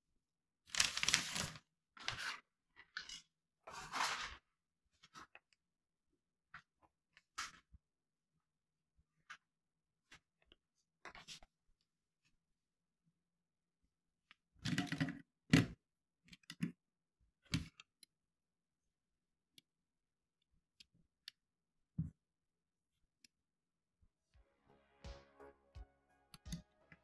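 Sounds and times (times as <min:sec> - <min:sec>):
clicks and knocks of toy handling: 0:14.3 - 0:18.2.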